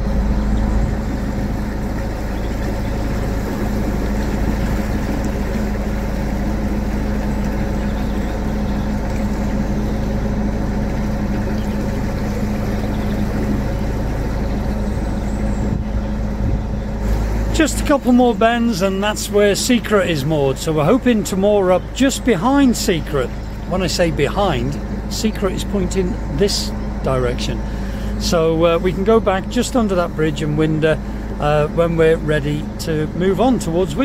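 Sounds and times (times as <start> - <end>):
boat engine humming: 0.0 - 34.0.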